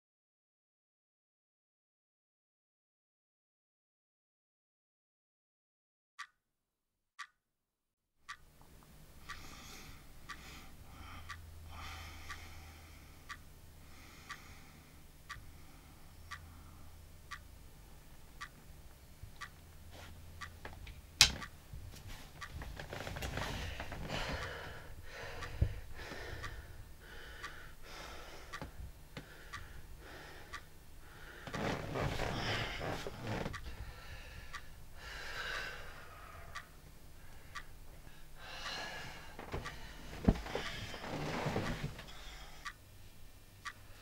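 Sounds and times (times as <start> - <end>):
clock ticking: 8.3 - 21.8, 22.4 - 42.9, 43.6 - 44.0
man breathing heavily: 9.2 - 17.0, 23.1 - 42.8.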